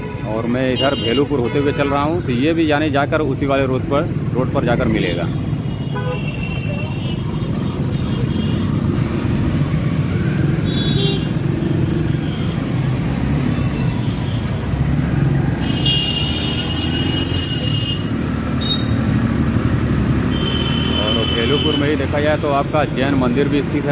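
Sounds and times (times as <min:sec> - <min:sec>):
motorcycle engine and road rumble: 0:00.0 - 0:23.9
vehicle horn: 0:05.8 - 0:07.2, 0:10.7 - 0:11.4, 0:15.6 - 0:19.0, 0:20.3 - 0:21.9.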